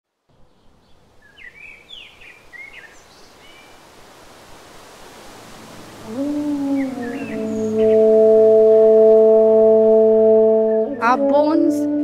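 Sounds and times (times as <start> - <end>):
outdoor ambient hiss: 0.0 - 12.0
birds chirping and whistling: 6.3 - 8.6.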